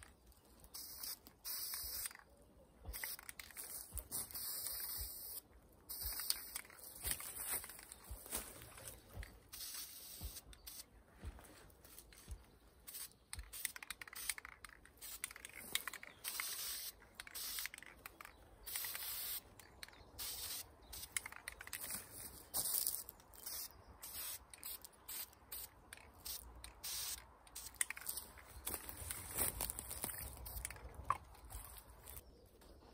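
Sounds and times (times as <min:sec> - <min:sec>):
dry leaves and fabric rustling: 0:06.4 - 0:09.4, 0:28.1 - 0:32.2.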